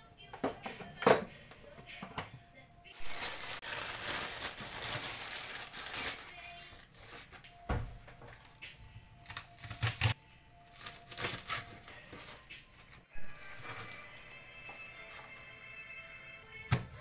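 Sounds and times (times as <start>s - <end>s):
plastic bag crinkling: 3.0s - 7.3s, 9.2s - 12.0s
knife cutting crisp stems: 9.3s - 10.2s.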